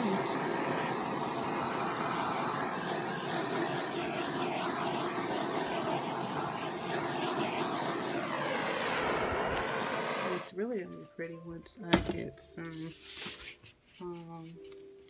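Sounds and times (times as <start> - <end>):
torch flame hissing: 0.0 - 10.6.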